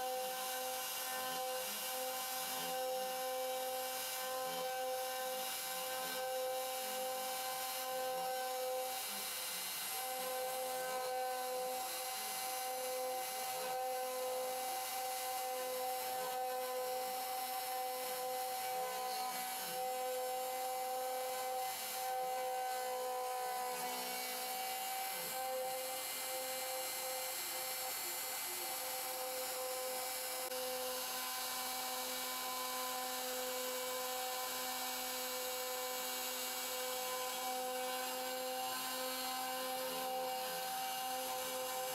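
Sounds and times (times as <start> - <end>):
router spindle whining: 0.0 - 41.9.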